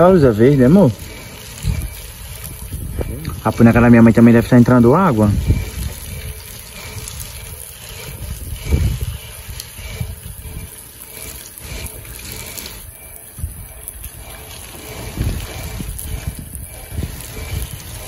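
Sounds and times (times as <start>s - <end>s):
heavy rain pouring: 0.0s - 18.0s
low thunder rumbles: 13.3s - 18.0s.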